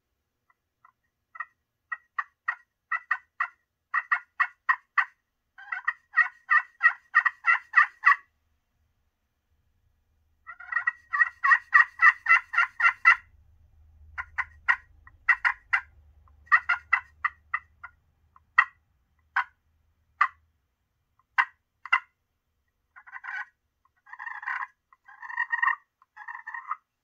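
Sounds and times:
slate turkey call yelps: 0.8 - 8.3, 10.4 - 13.3, 14.2 - 19.6, 20.2 - 20.4, 21.2 - 22.2, 22.9 - 26.9.

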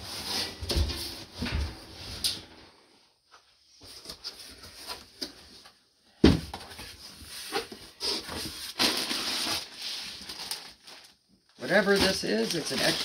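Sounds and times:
packaging rustling and crinkling: 6.7 - 13.0.

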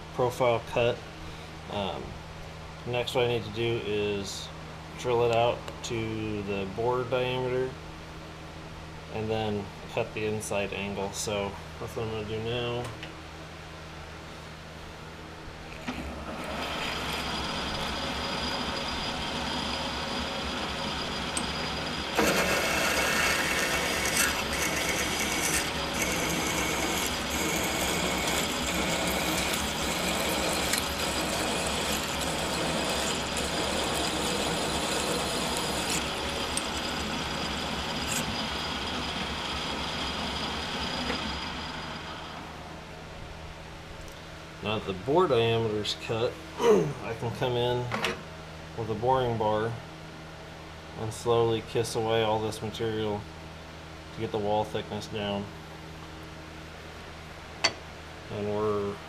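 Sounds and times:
lathe running: 16.0 - 42.6
drill cutting into metal: 16.4 - 40.8.

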